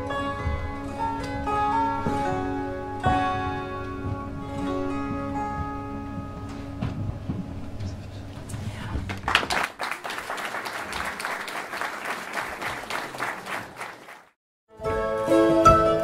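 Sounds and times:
audience applauding: 9.0 - 14.4.

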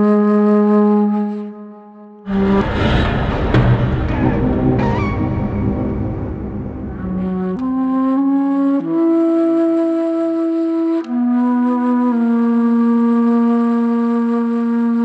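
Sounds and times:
solo wind instrument melody: 0.0 - 2.2, 7.0 - 15.0.

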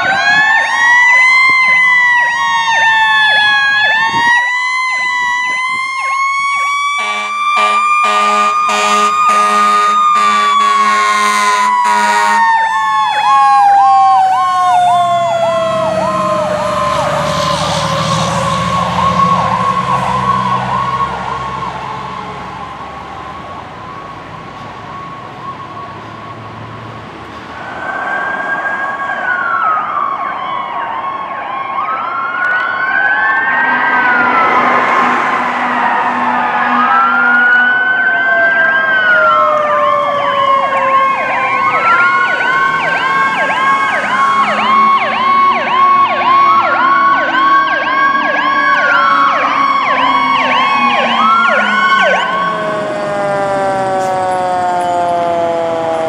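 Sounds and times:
mechanical siren wailing: 0.0 - 26.6, 27.6 - 56.0
steady electronic siren tone: 0.0 - 26.6, 27.6 - 56.0
air horn blasts: 7.0 - 12.6.

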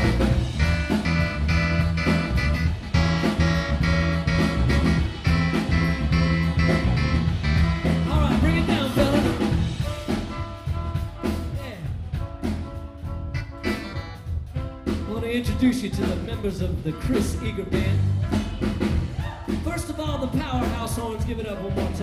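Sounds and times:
electric guitar: 0.0 - 11.5, 12.1 - 15.1
wavering lead line: 0.0 - 15.4
electric keyboard: 0.0 - 19.1
drum kit beat: 0.0 - 22.0.

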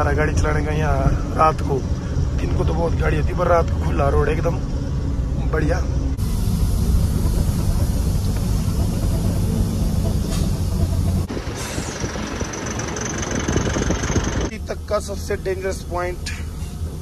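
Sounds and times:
truck engine running: 0.0 - 17.0
rattling noise: 6.5 - 14.6.

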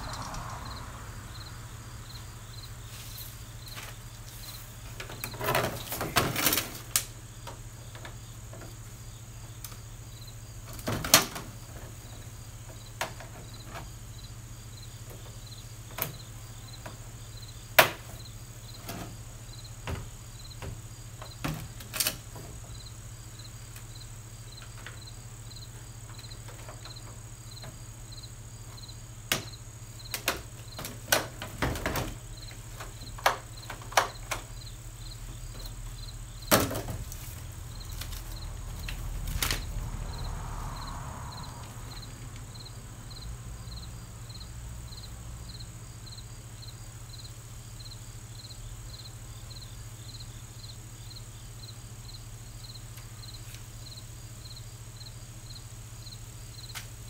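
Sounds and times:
cricket chirping: 0.0 - 57.0
plastic parts clicking and knocking: 30.1 - 34.5.

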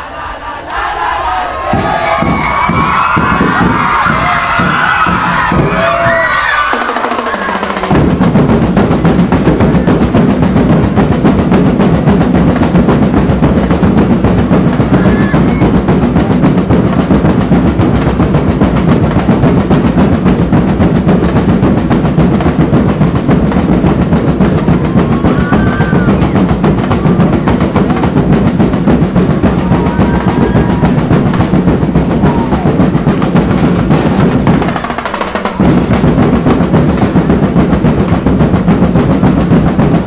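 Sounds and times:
crowd cheering: 0.0 - 10.2, 14.6 - 16.2, 23.8 - 38.3
snare drum rolls: 0.6 - 40.0
drum ensemble fast beat: 0.9 - 40.0.

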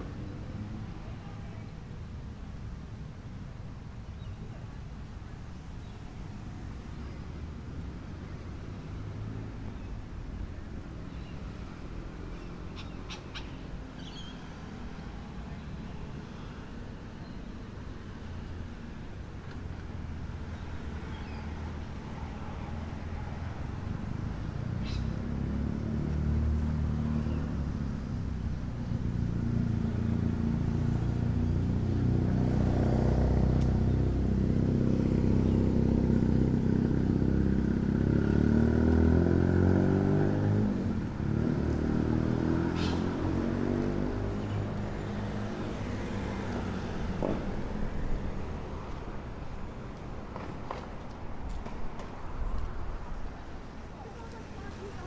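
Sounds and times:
road traffic passing: 0.0 - 55.0
vehicle accelerating away: 29.1 - 47.6.

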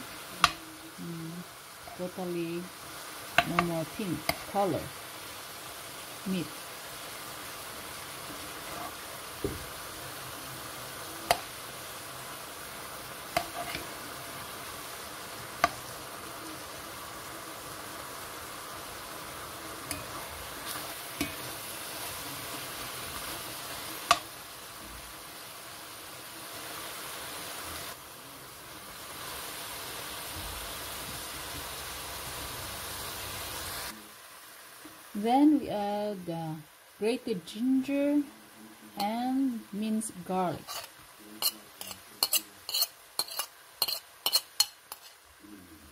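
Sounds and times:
chicken and onion sizzling in oil: 0.0 - 45.9
metal spoon clinking on pan: 19.9 - 20.2, 40.6 - 45.2.

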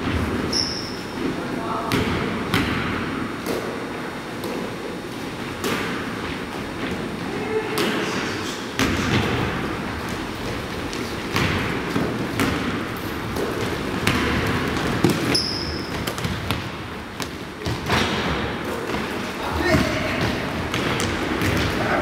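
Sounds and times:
sneaker squeak: 0.4 - 1.3, 15.0 - 16.4
basketball bouncing on wooden floor: 1.8 - 3.0, 8.8 - 22.0.

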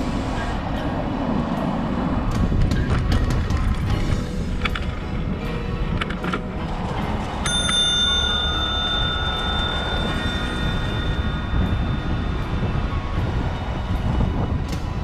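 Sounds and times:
wind and road rumble: 0.0 - 15.0
bicycle bell ringing: 7.4 - 13.1.

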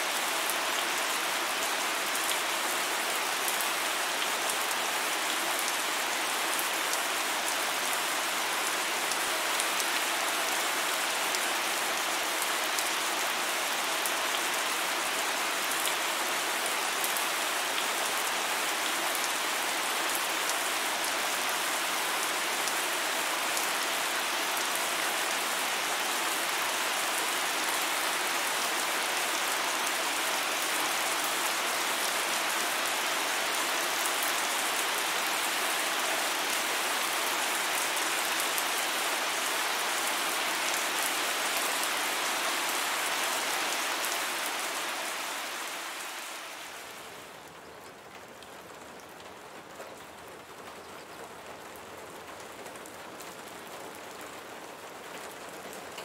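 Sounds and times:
steady rain falling: 0.0 - 56.0.

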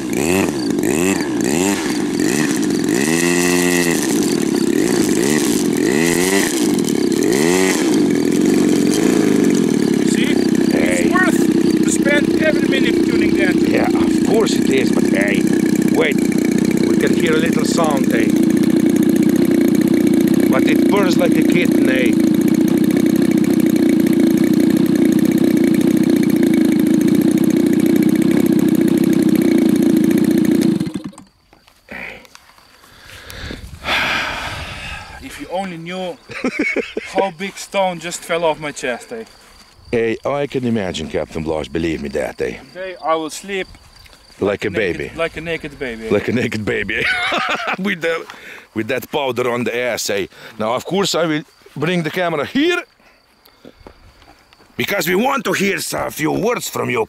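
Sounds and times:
small two-stroke engine revving: 0.0 - 31.3, 44.8 - 47.8.

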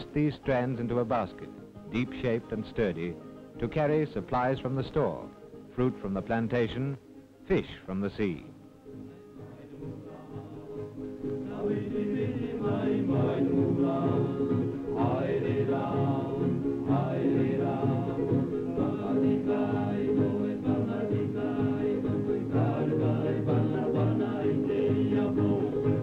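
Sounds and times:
group of voices singing: 9.1 - 26.0.

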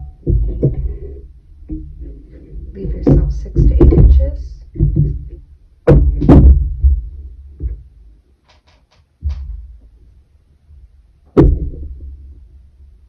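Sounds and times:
dull thumps on wood: 0.2 - 7.9, 11.3 - 12.3.

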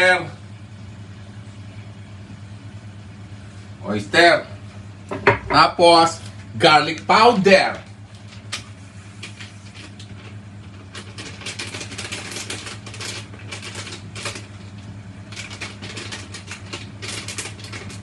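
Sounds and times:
steady low hum: 0.0 - 18.0
seasoning packet rustling: 9.3 - 18.0.

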